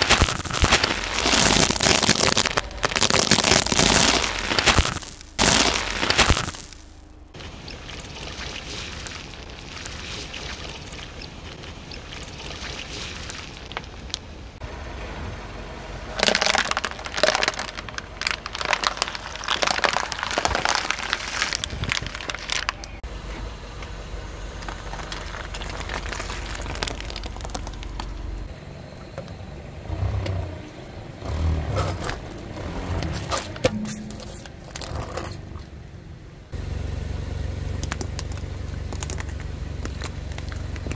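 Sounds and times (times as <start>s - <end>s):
tyre crushing plastic bottles: 0.0s - 7.0s, 16.1s - 23.0s, 24.6s - 28.2s, 31.7s - 35.5s.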